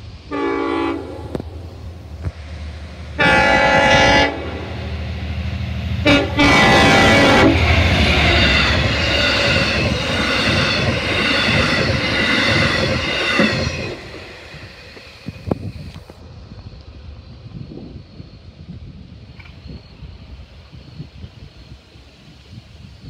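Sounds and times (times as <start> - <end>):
locomotive diesel engine: 0.0 - 23.0
train wheels rattling on rails: 0.0 - 23.0
train horn blasts: 0.3 - 1.4, 3.2 - 4.8, 6.0 - 9.6.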